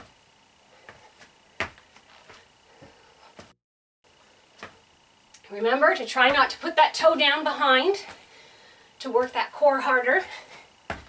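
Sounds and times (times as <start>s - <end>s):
feet thudding on foam mats: 0.8s - 3.6s, 4.6s - 4.8s, 6.2s - 6.8s, 10.2s - 11.0s.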